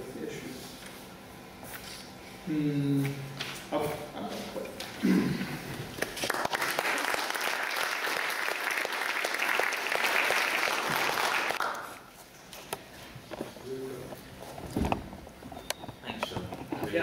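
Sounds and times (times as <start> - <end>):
audience applauding: 6.0 - 12.0.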